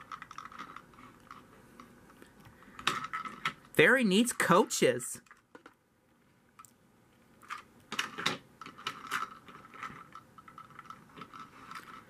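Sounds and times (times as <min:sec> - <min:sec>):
plastic toy clicks and knocks: 0:00.0 - 0:01.9, 0:05.2 - 0:05.8, 0:07.4 - 0:12.0.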